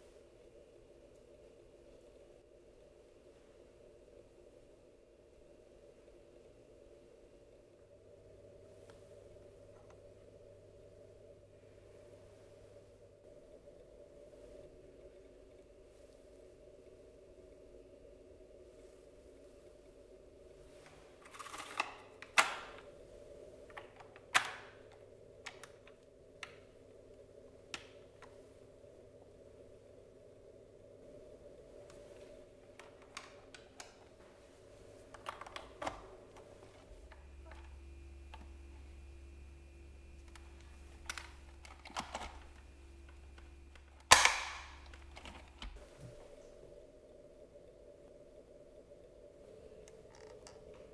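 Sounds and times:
plastic parts clicking: 0:21.2 - 0:22.9, 0:23.7 - 0:26.7, 0:32.7 - 0:34.2, 0:35.0 - 0:38.9, 0:40.2 - 0:45.8, 0:49.8 - 0:50.9
loud sharp plastic clicks: 0:41.0 - 0:45.8
loud sharp plastic snap: 0:43.8 - 0:45.7.

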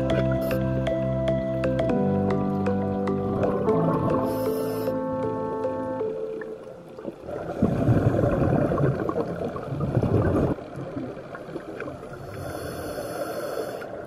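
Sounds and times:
underwater water noise: 0:00.0 - 0:14.0
gurgling rush of exhaled bubbles: 0:07.2 - 0:12.4.

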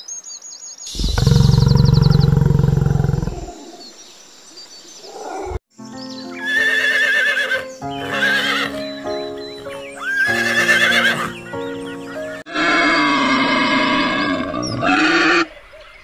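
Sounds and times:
background music sustained notes: 0:05.7 - 0:12.5
horse whinnying: 0:06.5 - 0:08.8, 0:10.0 - 0:11.4, 0:12.5 - 0:15.5.

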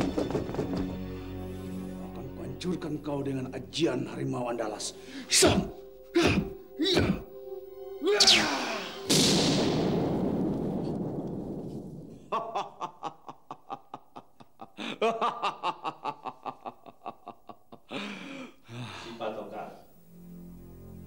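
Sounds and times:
sudden loud noise effect: 0:08.2 - 0:12.3
person laughing mockingly: 0:12.3 - 0:18.2.

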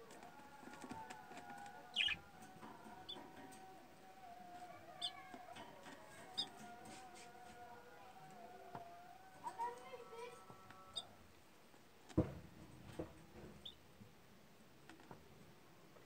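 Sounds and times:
budgerigars chirping: 0:01.9 - 0:02.2.

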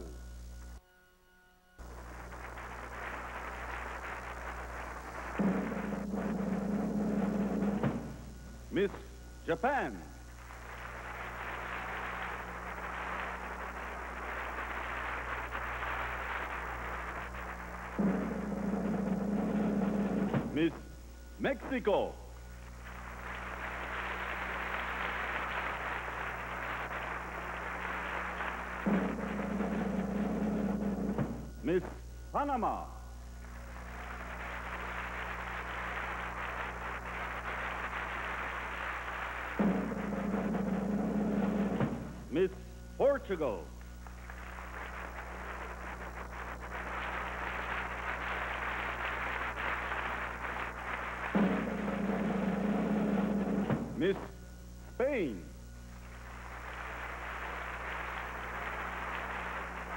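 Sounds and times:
low recording hum: 0:00.0 - 0:59.9
lower pitched drum roll: 0:01.8 - 0:08.8, 0:10.3 - 0:21.0, 0:22.5 - 0:31.7, 0:33.5 - 0:42.4, 0:44.1 - 0:54.3
audience applauding: 0:01.8 - 0:21.0, 0:21.8 - 0:54.4, 0:55.8 - 0:59.9
drum roll: 0:01.8 - 0:21.8, 0:22.4 - 0:59.9.

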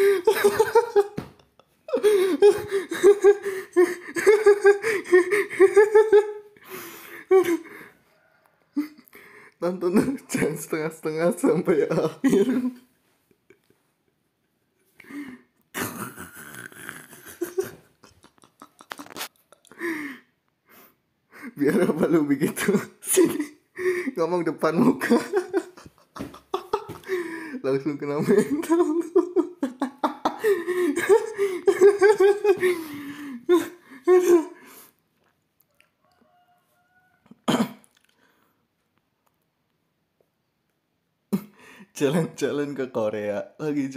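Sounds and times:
person laughing: 0:00.0 - 0:07.8, 0:11.5 - 0:12.9, 0:15.0 - 0:20.2, 0:21.4 - 0:34.7
person making rasping sound: 0:15.8 - 0:19.8.

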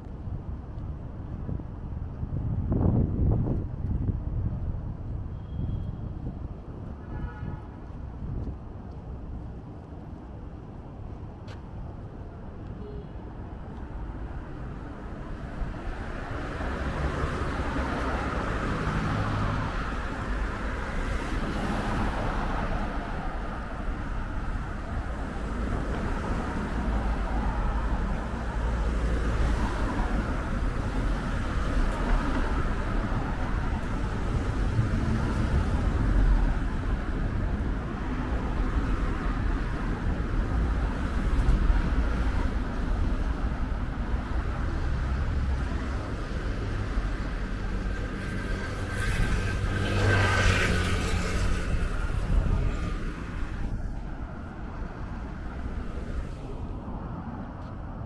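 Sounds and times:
cars driving past: 0:13.8 - 0:58.0.

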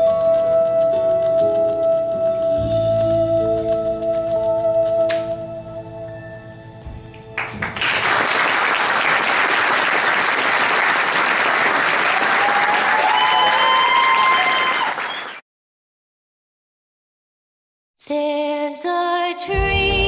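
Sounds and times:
audience applauding: 0:07.4 - 0:15.4
person cheering: 0:12.0 - 0:15.2.

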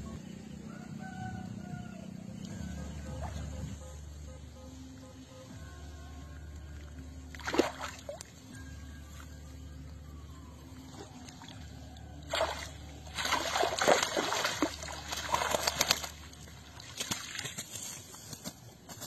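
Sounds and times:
muddy water splashing: 0:07.3 - 0:08.4, 0:10.7 - 0:18.3.

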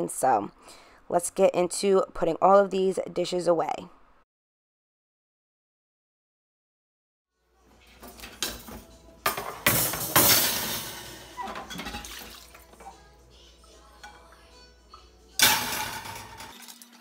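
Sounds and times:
dishes and cutlery clattering: 0:07.8 - 0:13.0, 0:15.4 - 0:17.0.

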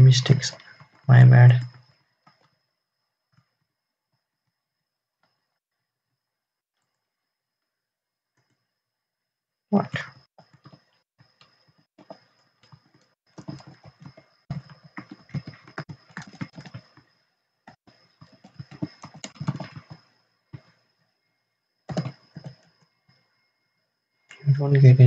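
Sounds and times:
faint high whine: 0:00.0 - 0:25.0
keyboard typing: 0:10.4 - 0:17.1, 0:17.7 - 0:20.8, 0:21.9 - 0:22.8.

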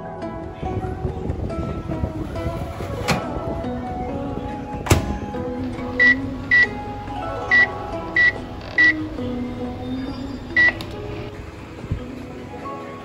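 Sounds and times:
background music: 0:00.0 - 0:13.0
microwave keypad beeps: 0:05.9 - 0:06.8, 0:07.5 - 0:09.1, 0:10.4 - 0:11.0.

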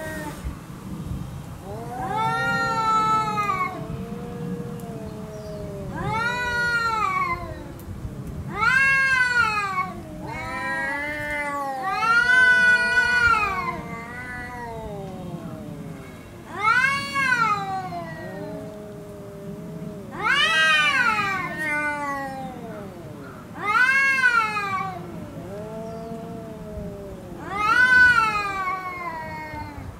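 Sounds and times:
cats yowling: 0:00.0 - 0:00.4, 0:01.6 - 0:29.9
low cat moan: 0:01.6 - 0:29.9.

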